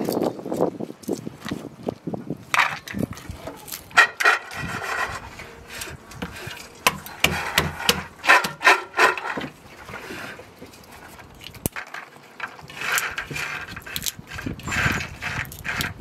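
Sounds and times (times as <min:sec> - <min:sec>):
stone cracking walnuts: 0:05.8 - 0:09.5, 0:11.2 - 0:16.0.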